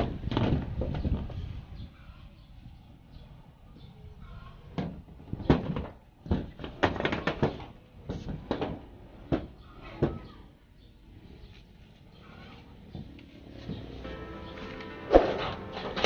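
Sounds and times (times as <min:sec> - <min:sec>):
knocks on metal roofing: 0:04.8 - 0:10.4.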